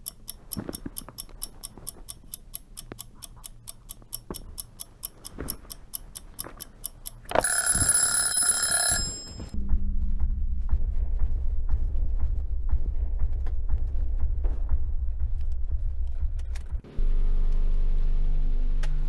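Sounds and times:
clock ticking fast: 0:00.0 - 0:09.6
alarm clock bell ringing: 0:07.4 - 0:09.6
loud low drone: 0:09.6 - 0:18.9.

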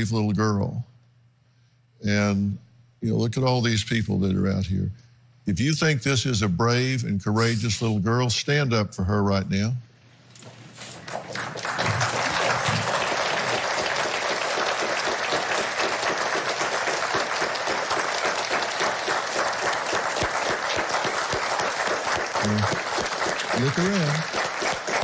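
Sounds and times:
audience applauding: 0:11.0 - 0:25.0.

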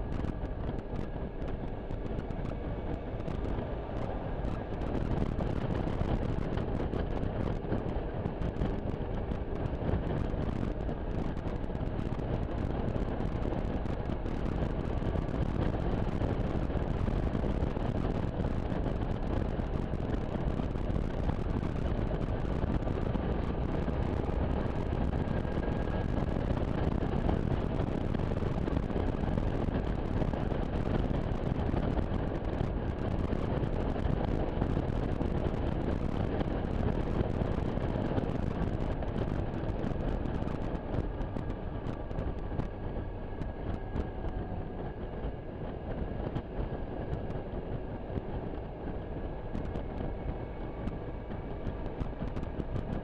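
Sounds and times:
wind and road noise: 0:00.0 - 0:53.0.

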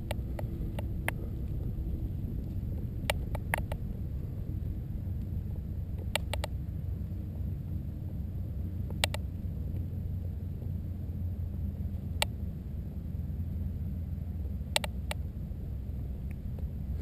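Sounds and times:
wind rumble on microphone: 0:00.0 - 0:17.0
faint sharp ticks: 0:05.9 - 0:06.6, 0:08.8 - 0:09.9, 0:14.7 - 0:15.2.

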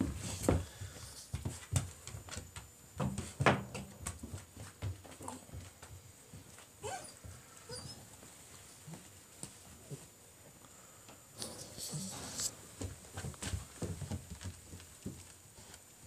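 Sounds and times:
puppy whimpering and yipping: 0:06.8 - 0:08.0
handling knocks and rustles: 0:11.4 - 0:15.9.

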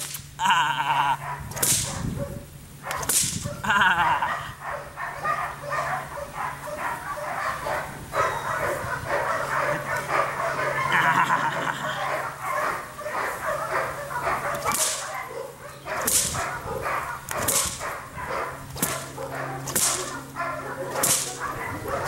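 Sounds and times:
sharp hiss: 0:00.0 - 0:00.4
puppy growling and yipping: 0:01.2 - 0:22.0.

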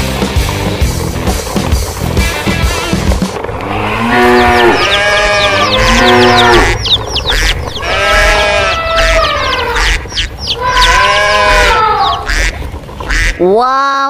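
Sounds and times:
cows mooing: 0:02.7 - 0:13.4.

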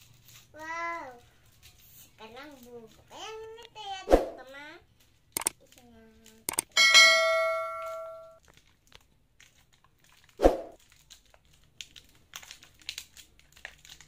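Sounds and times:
cardboard and paper crinkling: 0:00.0 - 0:03.6, 0:08.4 - 0:14.0
bell-like chime: 0:06.8 - 0:08.4.

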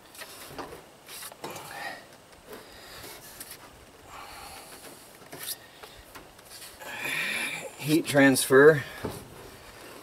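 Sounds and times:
man breathing: 0:01.4 - 0:03.4, 0:04.0 - 0:07.8.

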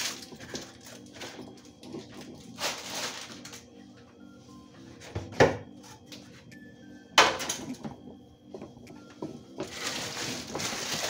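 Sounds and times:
plastic crinkling: 0:00.0 - 0:03.6, 0:09.6 - 0:11.0
items knocking: 0:07.2 - 0:11.0.

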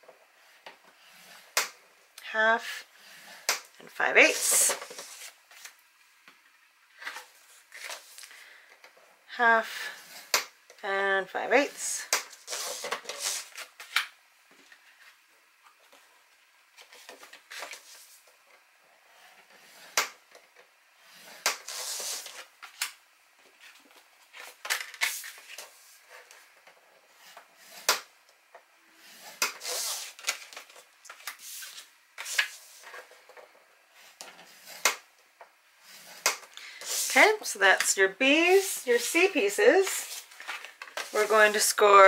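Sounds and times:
scoring tool scraping grooves: 0:29.0 - 0:30.2.

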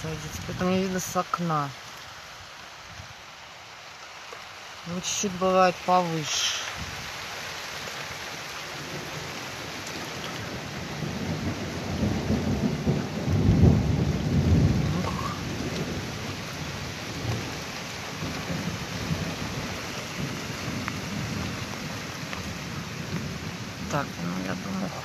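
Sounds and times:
steady rain: 0:00.0 - 0:25.0
thunder rolling: 0:10.4 - 0:22.0.

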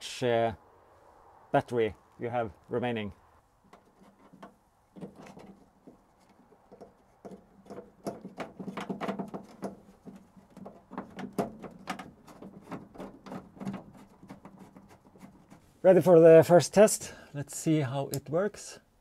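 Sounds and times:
plastic clicks taps and knocks: 0:03.7 - 0:14.6.

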